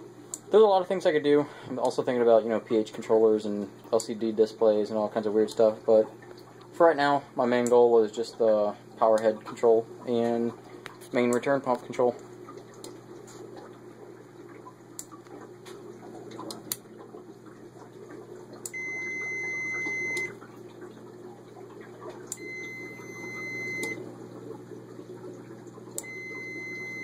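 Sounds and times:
steady low hum: 0.0 - 27.0
high multimeter beep: 18.7 - 20.3, 22.4 - 24.0, 26.0 - 27.0.

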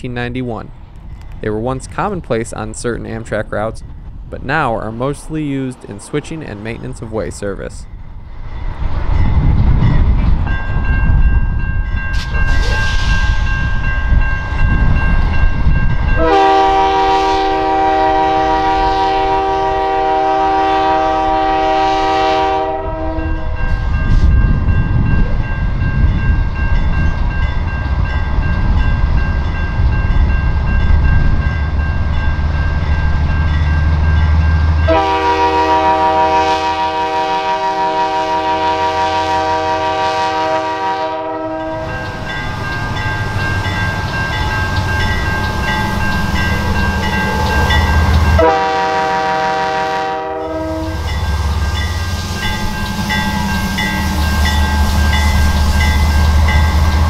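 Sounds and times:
diesel locomotive engine rumble: 0.0 - 57.0
locomotive horn blast: 16.2 - 23.6, 34.8 - 42.0, 47.2 - 51.4.

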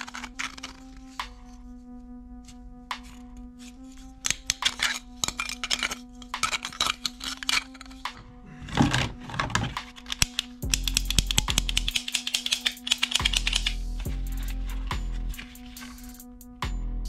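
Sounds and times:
plastic toys clattering: 0.0 - 0.9, 4.3 - 10.6, 11.9 - 13.6
hand scraping through toys: 0.0 - 1.7, 2.4 - 16.2
background music: 0.0 - 17.0.

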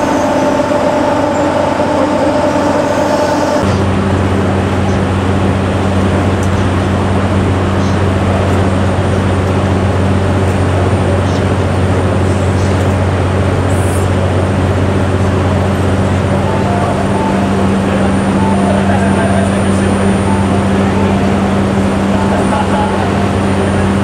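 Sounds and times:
cooling blowers rushing air: 0.0 - 24.0
deep even hum: 13.1 - 24.0.

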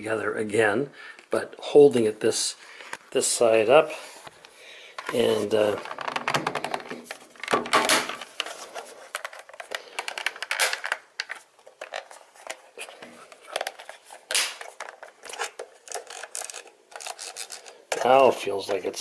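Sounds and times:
plastic clicks and scrapes: 5.0 - 18.9.

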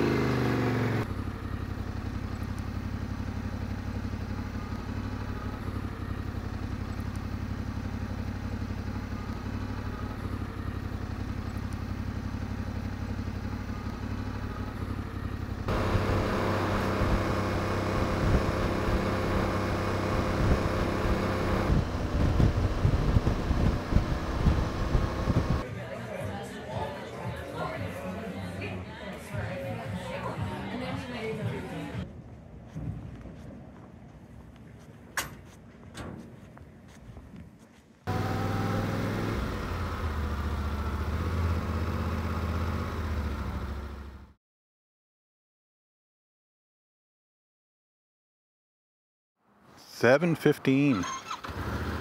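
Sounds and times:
motorcycle engine running: 0.0 - 25.6, 38.1 - 44.4.

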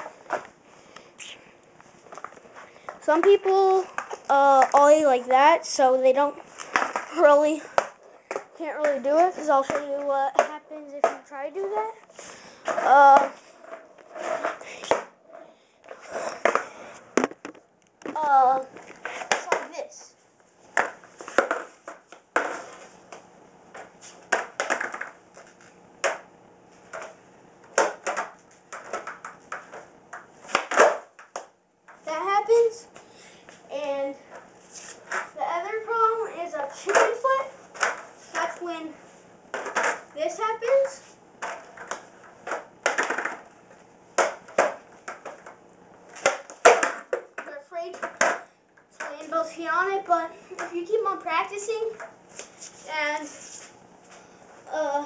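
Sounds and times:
skateboard clacking on concrete: 19.0 - 19.8, 20.8 - 22.6, 23.8 - 26.2, 27.8 - 31.5, 40.6 - 43.4, 44.2 - 45.6, 46.2 - 48.4
skateboard knocks and clacks: 24.3 - 25.2, 46.2 - 48.4.

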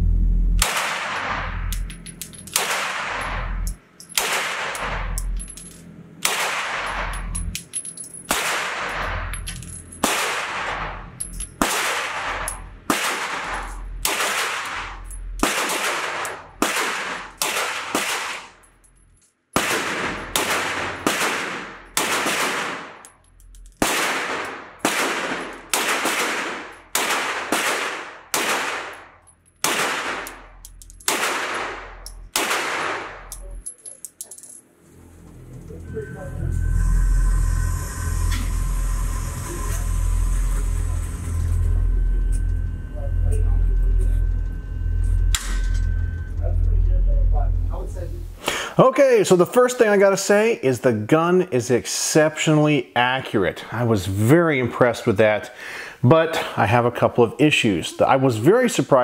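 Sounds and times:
carbine gunshots echoing indoors: 0.6 - 1.8, 2.5 - 3.6, 4.2 - 5.1, 6.2 - 7.1, 8.3 - 9.1, 10.0 - 10.9, 11.6 - 18.6, 19.6 - 23.0, 23.8 - 33.4.

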